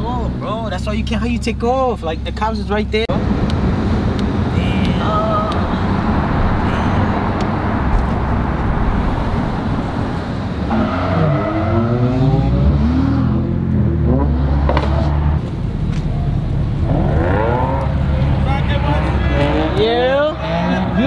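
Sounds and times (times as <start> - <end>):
car engine and road noise: 0.0 - 21.0
engine revving: 3.2 - 15.4, 16.8 - 21.0.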